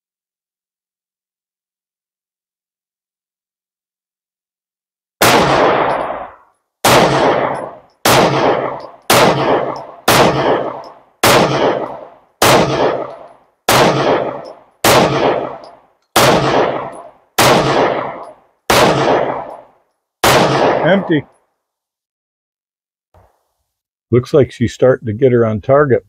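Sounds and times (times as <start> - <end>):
pistol shots with echo: 5.2 - 21.3.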